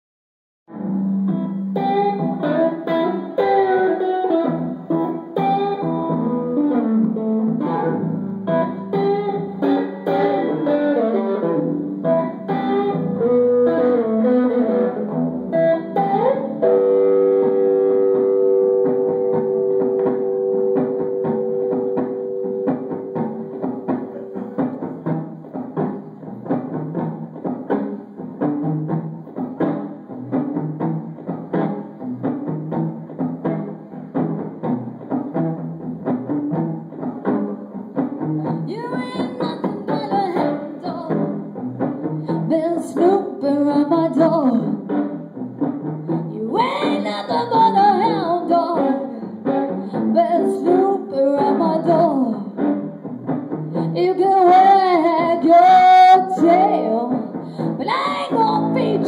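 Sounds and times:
electric guitar playing: 0:00.7 - 0:59.0
woman singing into microphone: 0:38.7 - 0:41.3, 0:42.3 - 0:44.9, 0:46.1 - 0:49.3, 0:49.9 - 0:52.6, 0:53.8 - 0:59.0.

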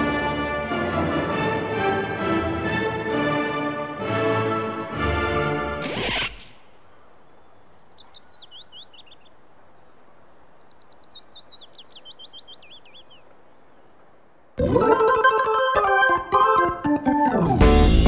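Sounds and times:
music: 0:00.0 - 0:05.8, 0:14.6 - 0:18.0
quiet outdoor background: 0:00.0 - 0:18.0
bird singing high whistled notes: 0:10.4 - 0:13.2.

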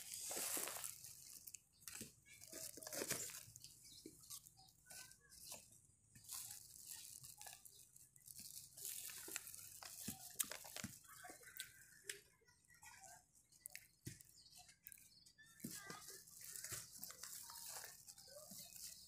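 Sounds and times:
paper bag rustling: 0:00.0 - 0:03.7, 0:15.7 - 0:19.0
plastic bag crinkling: 0:00.0 - 0:05.4, 0:06.2 - 0:11.6, 0:13.6 - 0:19.0.

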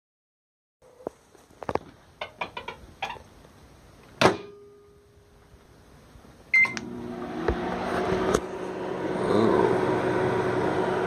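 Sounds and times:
microwave running hum: 0:06.5 - 0:11.0.

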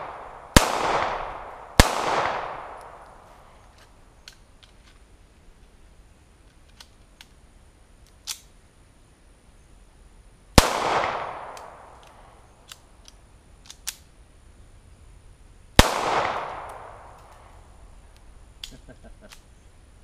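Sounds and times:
pistol shots with echo: 0:00.0 - 0:03.2, 0:10.6 - 0:12.0, 0:15.8 - 0:17.4
faint clicks: 0:02.8 - 0:05.0.

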